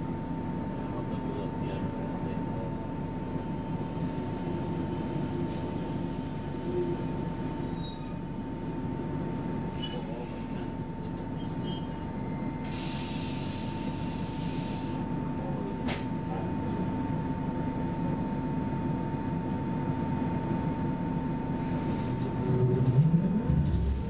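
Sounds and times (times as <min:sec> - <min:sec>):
low train hum: 0:00.0 - 0:24.0
wheel squeals: 0:07.8 - 0:08.4, 0:09.5 - 0:12.9.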